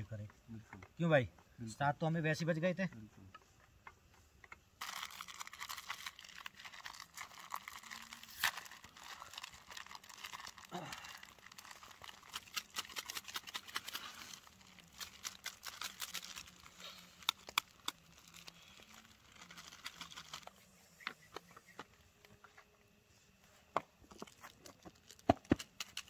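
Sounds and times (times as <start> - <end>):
plastic packet tearing: 4.8 - 20.6, 24.9 - 26.0
plastic packets crinkling: 4.8 - 20.6, 24.2 - 26.0.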